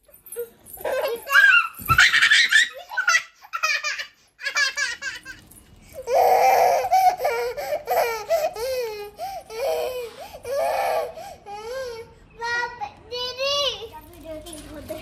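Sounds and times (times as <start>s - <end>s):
child laughing: 0.8s - 5.4s.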